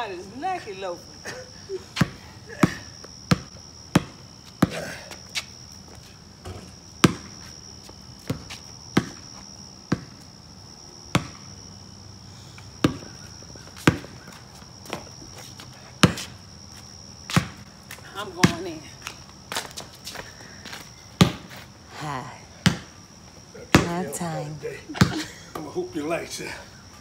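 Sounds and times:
basketball bouncing on concrete: 2.0s - 5.2s, 6.4s - 10.2s, 11.1s - 11.6s, 12.8s - 15.3s, 16.0s - 16.4s, 17.3s - 18.8s, 21.2s - 21.6s, 22.6s - 22.9s, 23.7s - 24.2s, 25.0s - 25.6s.

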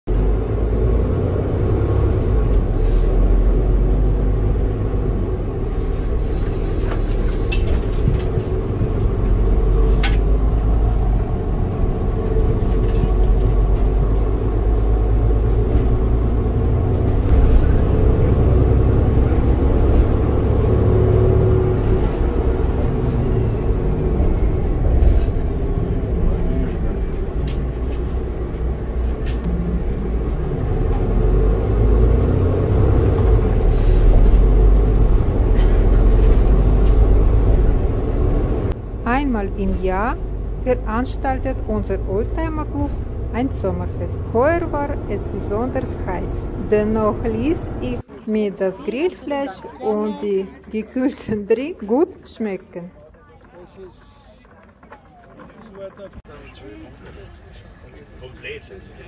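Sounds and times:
bus engine and road rumble: 0.0s - 59.0s.

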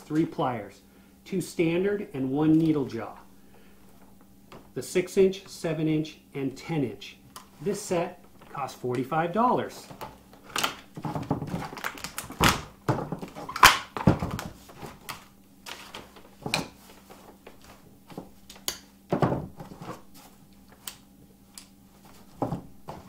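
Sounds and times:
plastic packaging rattling: 9.9s - 15.1s.

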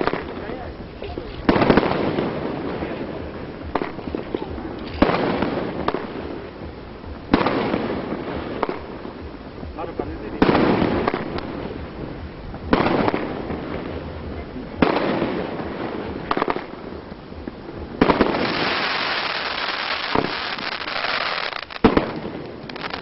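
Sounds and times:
fireworks bangs: 0.0s - 23.0s
fireworks crackling hiss: 0.0s - 23.0s.

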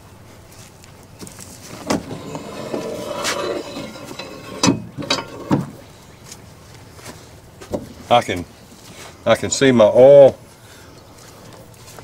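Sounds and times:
drawn-out metal grating: 1.7s - 6.0s
metal clicks and knocks: 1.9s - 5.8s.

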